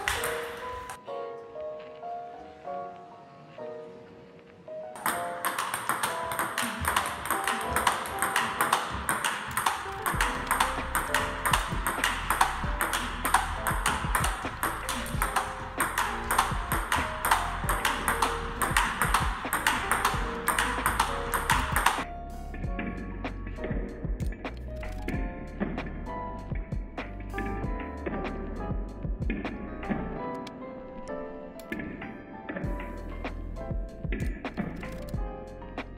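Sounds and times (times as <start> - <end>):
ball bouncing on table: 0.0 - 1.0, 5.0 - 22.0
ping pong ball clicking on paddles: 0.0 - 1.0, 5.0 - 22.1
background music: 0.0 - 35.9.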